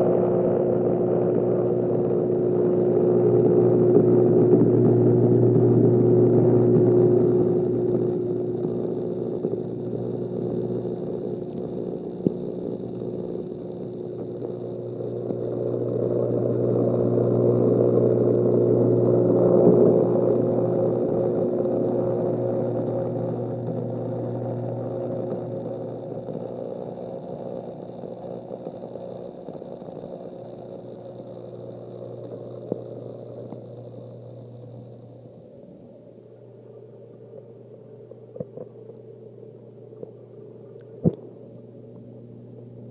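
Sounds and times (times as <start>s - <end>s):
electrical pump hum: 0.0s - 42.9s.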